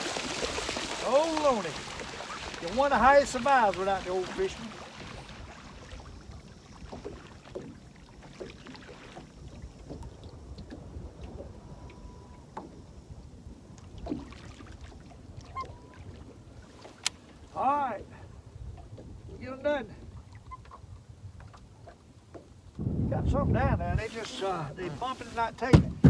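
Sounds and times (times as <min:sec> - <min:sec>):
water noise: 0:00.0 - 0:25.8
low wind: 0:00.0 - 0:26.0
faint short steady tone: 0:11.6 - 0:12.8.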